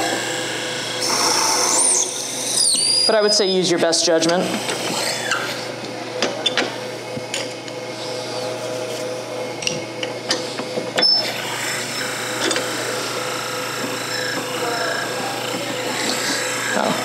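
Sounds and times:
wood lathe humming: 0.0s - 3.2s, 10.7s - 17.0s.

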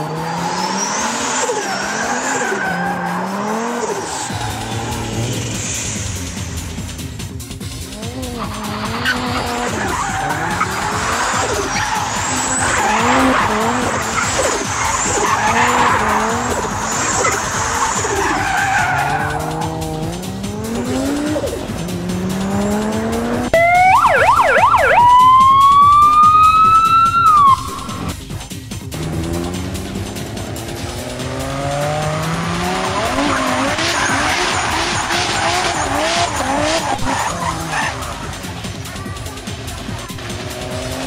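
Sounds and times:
tyres squealing in a burnout: 0.0s - 6.1s, 8.0s - 21.7s, 31.3s - 41.0s
car engine revving hard: 0.0s - 7.1s, 7.7s - 23.5s, 28.8s - 41.0s
warbling siren: 23.5s - 28.1s.

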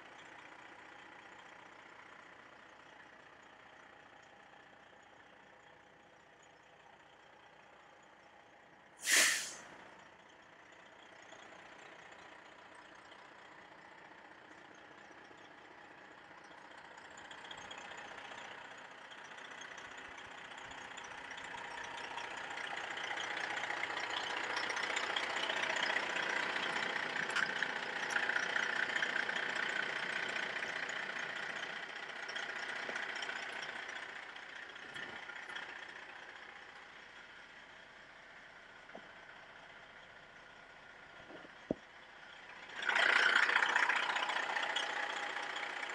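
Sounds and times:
truck diesel engine running: 0.0s - 45.9s
loud sharp burst: 9.0s - 9.6s.

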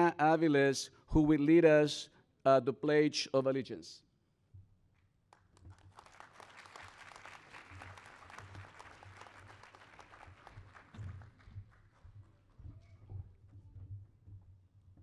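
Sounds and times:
audience applauding faintly: 5.3s - 13.0s.

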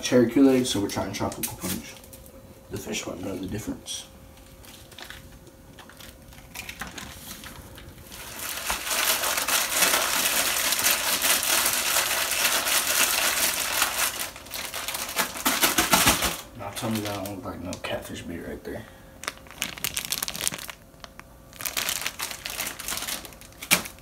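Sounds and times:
plastic packaging crinkling: 4.4s - 18.0s, 19.2s - 24.0s.

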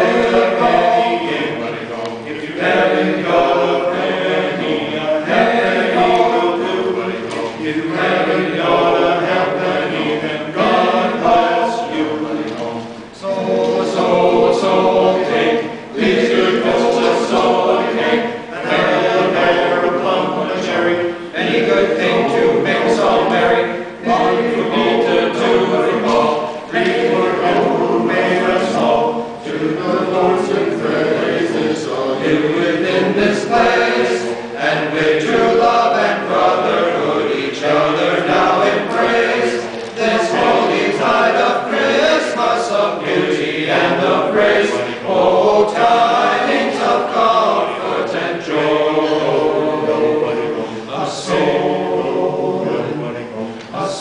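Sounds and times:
men's choir singing a cappella: 0.0s - 54.0s
singers breathing: 50.6s - 50.9s.

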